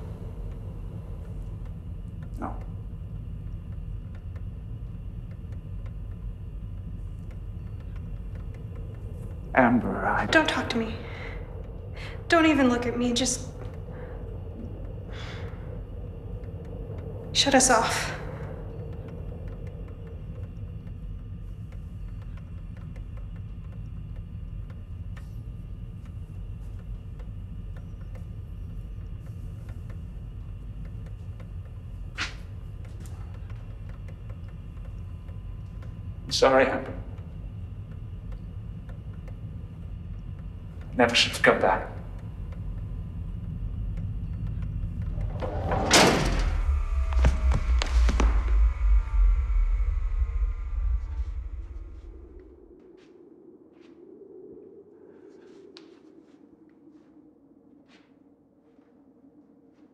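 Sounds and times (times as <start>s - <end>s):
soft ticks: 0.0s - 46.0s
faint hum: 0.0s - 59.9s
low rumble: 0.0s - 59.9s.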